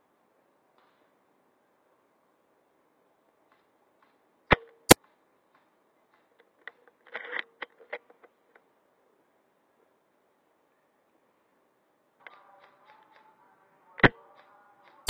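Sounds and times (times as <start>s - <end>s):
airsoft rifle cracks: 3.5s - 8.3s
rifle handling clicks and rattle: 3.5s - 8.7s.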